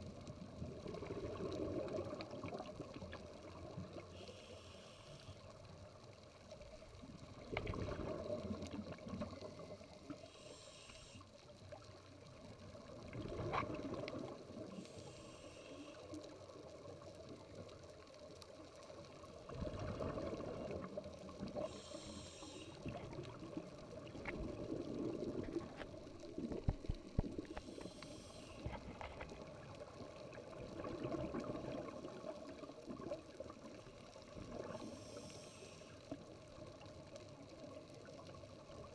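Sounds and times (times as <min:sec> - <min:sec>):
hissing regulator inhalations: 0:04.1 - 0:05.5, 0:10.1 - 0:11.4, 0:14.7 - 0:16.2, 0:21.6 - 0:23.0, 0:27.4 - 0:28.8, 0:34.7 - 0:36.0.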